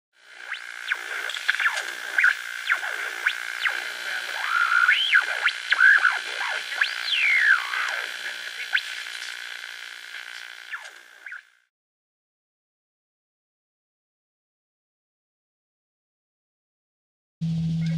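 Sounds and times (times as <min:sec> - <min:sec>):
steady held synth tone: 0:00.2 - 0:11.6
sliding whistle-like tones: 0:00.5 - 0:08.7.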